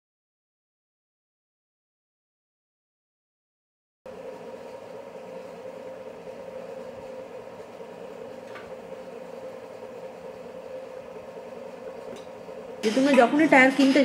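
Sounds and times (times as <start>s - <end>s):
mechanical hum: 4.1s - 14.0s.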